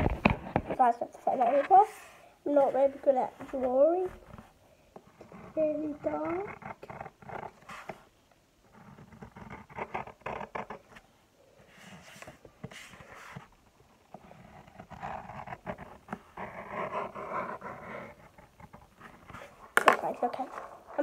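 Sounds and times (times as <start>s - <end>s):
pen scratching on paper: 5.1s - 8.0s, 8.7s - 10.9s, 14.1s - 19.5s.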